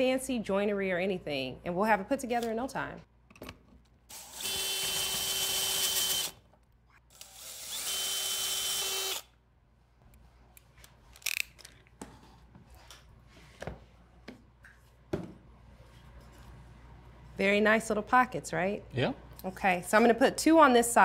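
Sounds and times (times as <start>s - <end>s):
cordless drill whining: 4.1s - 6.4s, 7.1s - 9.3s.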